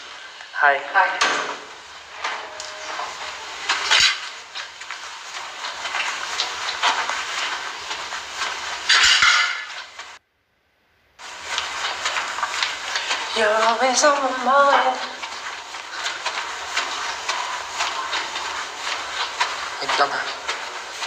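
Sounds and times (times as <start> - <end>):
steady background noise: 0.0 - 21.0
loud clatter: 1.2 - 10.2.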